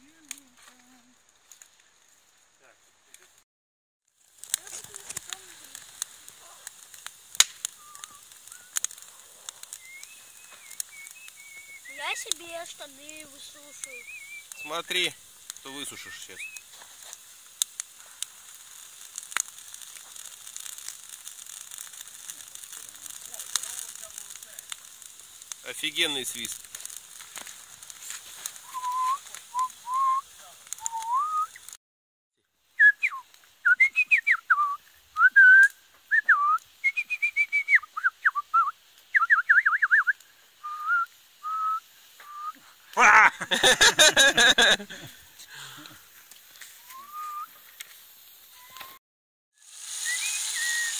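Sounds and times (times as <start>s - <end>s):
campfire crackling and hissing: 0.0s - 3.4s, 4.0s - 31.8s, 32.4s - 49.0s, 49.6s - 50.9s
sharp pop of fire: 4.2s - 11.9s, 13.8s - 31.8s
man whistling: 7.8s - 8.8s, 9.8s - 12.0s, 28.6s - 30.2s, 30.8s - 31.6s, 32.8s - 42.6s, 46.8s - 47.5s, 48.5s - 49.0s, 50.0s - 50.9s
man laughing: 43.0s - 46.0s.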